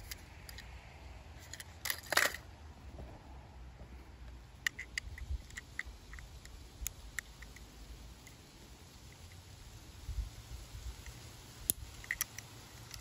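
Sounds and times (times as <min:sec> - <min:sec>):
toy cars clicking and rattling: 0:00.0 - 0:00.8, 0:01.4 - 0:02.5, 0:04.6 - 0:09.4, 0:11.1 - 0:13.0.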